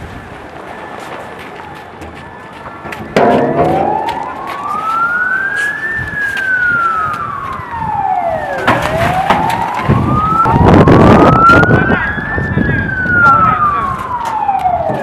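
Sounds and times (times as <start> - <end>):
siren wailing: 3.2 - 15.0.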